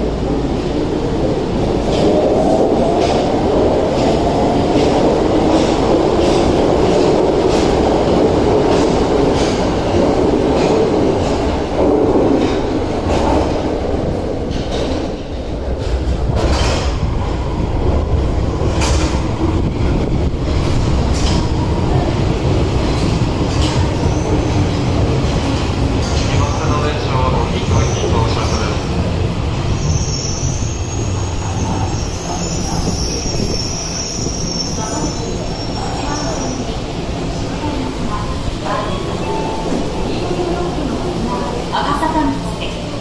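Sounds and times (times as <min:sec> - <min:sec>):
subway train rumbling: 0:00.0 - 0:43.0.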